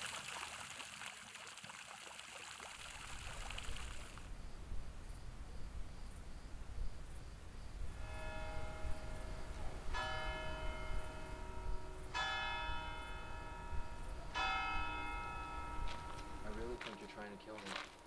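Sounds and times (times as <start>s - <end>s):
church bell striking: 7.9s - 17.8s.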